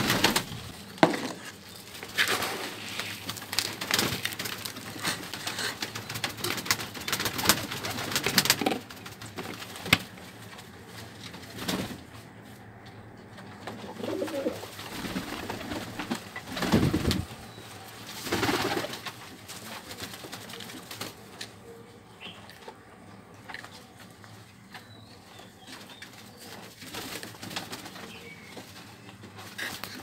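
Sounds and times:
wings flapping: 0:00.0 - 0:12.1, 0:13.6 - 0:21.5, 0:25.7 - 0:30.0
pigeons cooing: 0:13.7 - 0:17.5.

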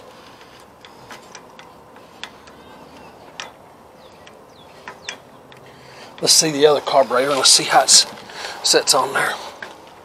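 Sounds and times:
light clicks and taps of tools: 0:00.4 - 0:06.4.

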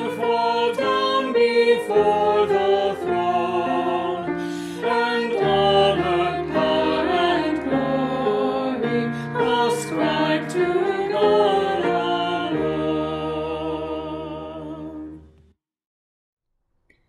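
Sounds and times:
hymn singing with instruments: 0:00.0 - 0:15.2.

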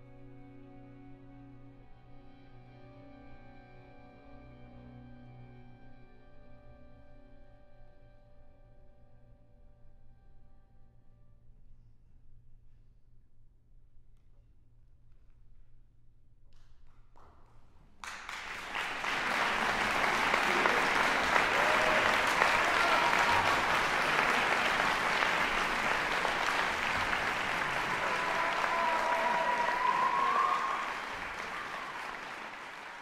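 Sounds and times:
audience applauding: 0:18.0 - 0:33.0.

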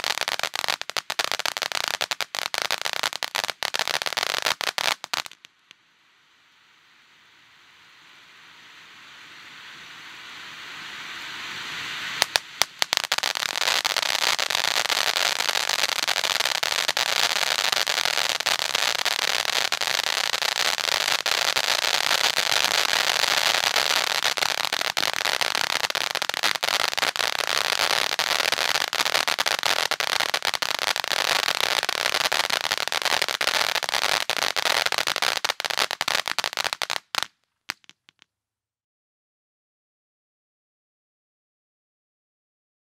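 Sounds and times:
firework sparks hissing: 0:00.0 - 0:38.0
dense firework crackling: 0:00.0 - 0:38.2
firework pops: 0:12.1 - 0:38.3
sharp cracks: 0:12.2 - 0:38.2.

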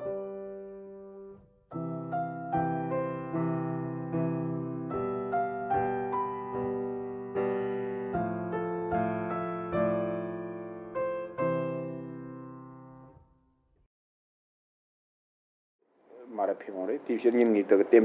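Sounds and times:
slow soft piano music: 0:00.0 - 0:13.5.

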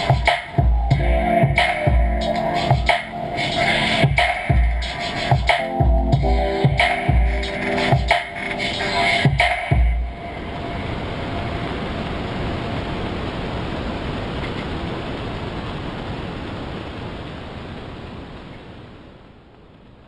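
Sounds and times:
deep beat hit: 0:00.0 - 0:03.2, 0:04.0 - 0:08.4, 0:09.2 - 0:10.2
static hiss: 0:00.0 - 0:20.0.

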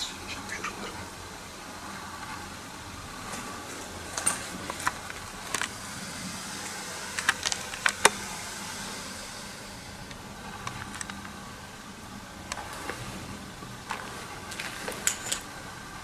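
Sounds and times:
steady hiss: 0:00.0 - 0:16.0
sharp clicks and cracks: 0:07.1 - 0:08.2, 0:10.1 - 0:11.4.

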